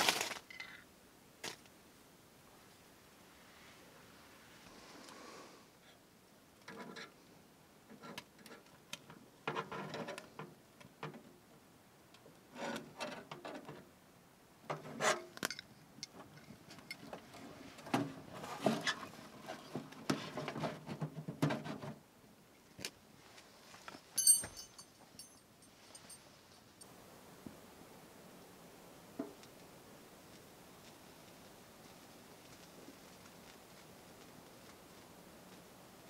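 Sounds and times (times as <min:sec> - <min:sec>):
kindling crackling: 0:29.4 - 0:36.0.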